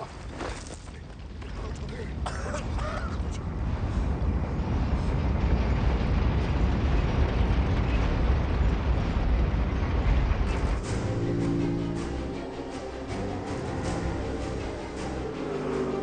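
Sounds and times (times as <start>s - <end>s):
giant machinery rumble: 0.2s - 16.0s
music: 10.5s - 16.0s.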